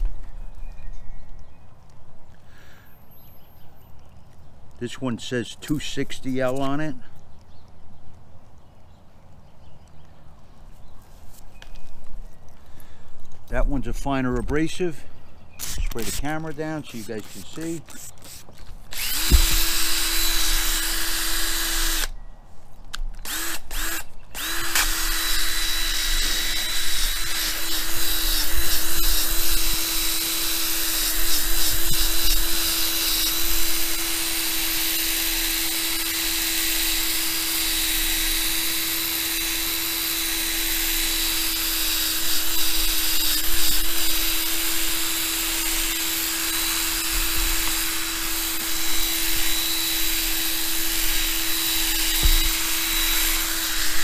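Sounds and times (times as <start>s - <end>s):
electric drill buffing plastic: 16.9s - 22.1s, 23.2s - 54.0s.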